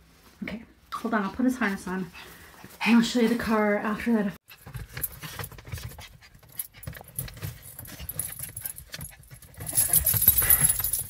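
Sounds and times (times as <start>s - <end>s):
rustling and handling noise: 4.4s - 11.0s
light metallic jingling: 6.5s - 11.0s.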